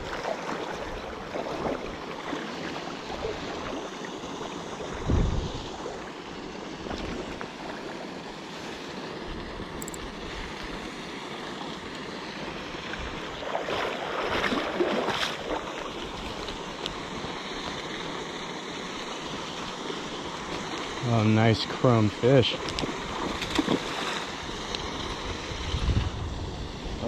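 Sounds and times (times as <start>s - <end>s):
water splashing: 0.0s - 26.8s
river water flowing: 0.0s - 27.0s.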